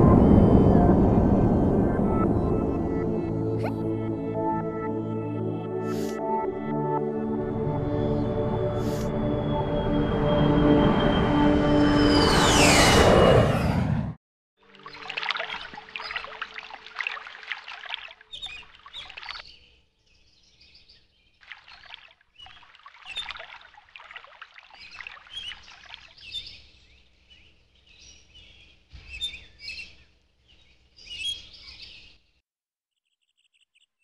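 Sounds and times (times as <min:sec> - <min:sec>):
water splashing on plants: 0:14.7 - 0:19.5, 0:21.4 - 0:26.3
birds chirping: 0:24.7 - 0:32.2.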